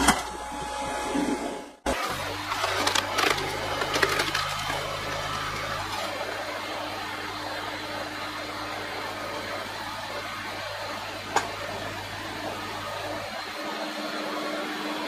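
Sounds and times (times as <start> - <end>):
tractor engine running: 1.8 - 7.8.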